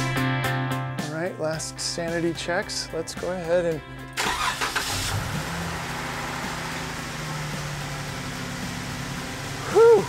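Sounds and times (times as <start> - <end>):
car engine idling: 3.9 - 10.0.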